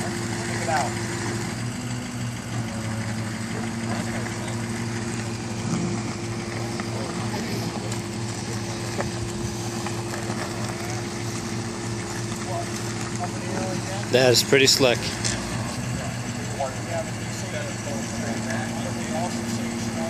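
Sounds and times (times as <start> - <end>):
truck engine running: 0.0 - 20.0.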